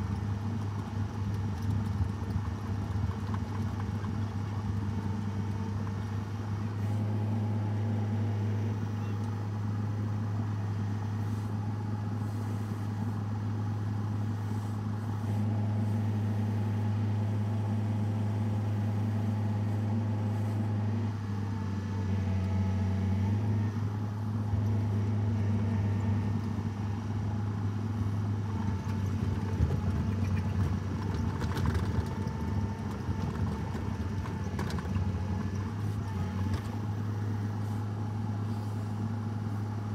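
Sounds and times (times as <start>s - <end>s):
engine running: 0.0s - 39.9s.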